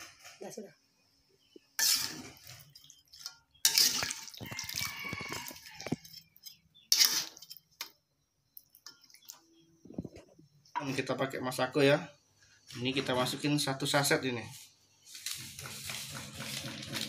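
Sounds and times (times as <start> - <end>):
metal spatula scraping wok: 1.8 - 7.9, 15.2 - 17.0.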